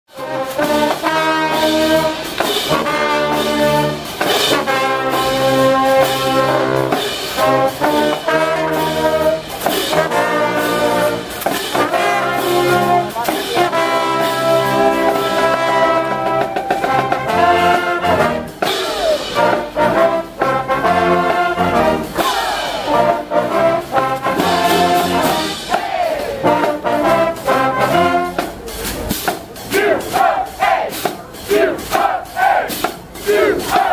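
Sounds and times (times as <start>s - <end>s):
brass band playing: 0.1s - 33.9s.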